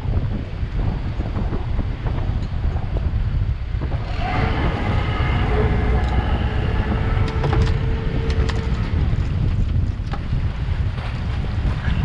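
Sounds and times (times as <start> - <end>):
wind buffeting microphone: 0.0 - 12.0
faint steady whine: 4.0 - 9.8.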